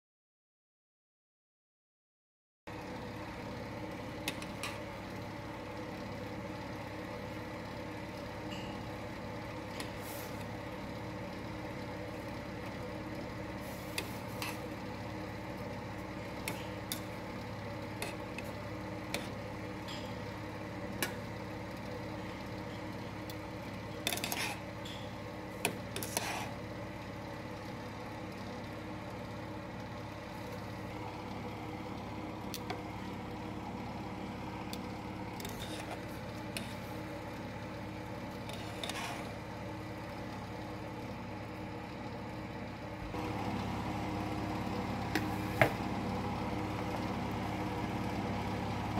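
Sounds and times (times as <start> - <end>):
steady mechanical hum: 2.7 - 48.9
metal tongs scraping a steel pot: 24.0 - 25.0, 25.9 - 26.6, 35.4 - 36.8, 38.4 - 39.3.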